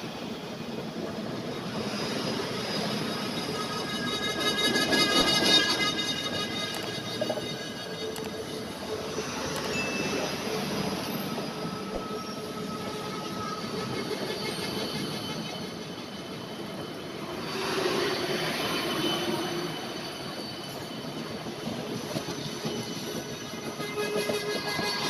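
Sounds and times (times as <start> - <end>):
train wheels rumbling on rail: 0.0 - 25.0
thin squealing tones: 1.2 - 17.0.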